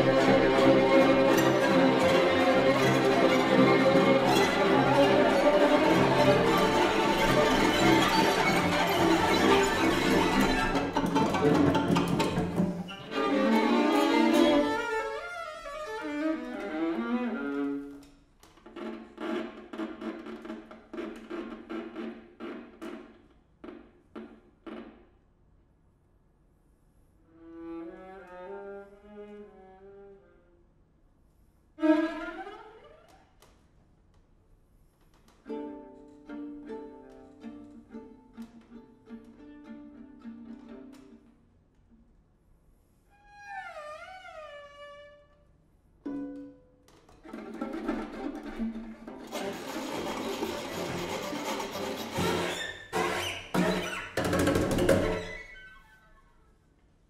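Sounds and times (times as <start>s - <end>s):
string quartet playing: 0.0s - 18.1s, 35.4s - 41.3s, 47.2s - 53.8s.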